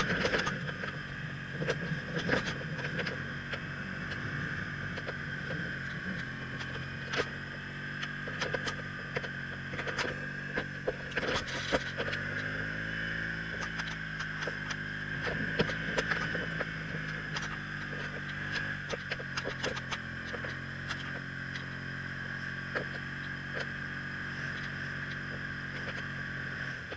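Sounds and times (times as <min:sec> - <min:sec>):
motorcycle engine running: 0:00.0 - 0:26.9.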